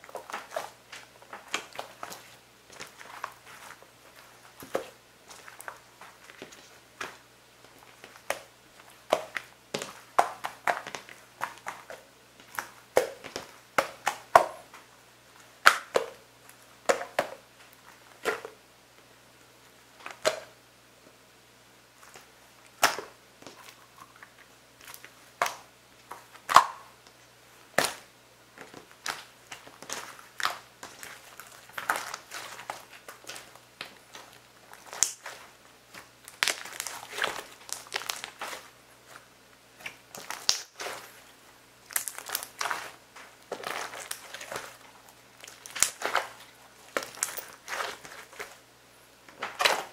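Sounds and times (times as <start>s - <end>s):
slime sticky pops and squelches: 39.8s - 41.0s, 45.5s - 47.9s.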